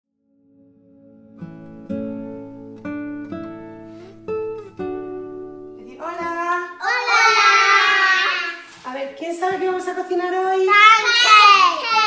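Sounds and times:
acoustic guitar plucked notes: 0.4s - 6.8s
loud children's voices: 6.8s - 8.7s, 10.7s - 12.0s.

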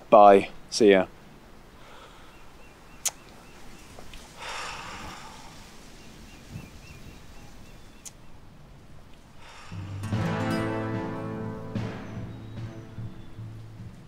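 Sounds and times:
small bird chirping: 2.2s - 4.3s, 5.5s - 8.4s.

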